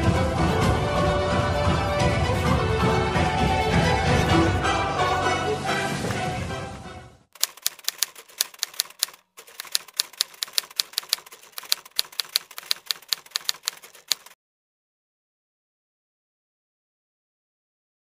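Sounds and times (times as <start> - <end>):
music: 0.0 - 7.3
typewriter key clacks: 7.4 - 14.4.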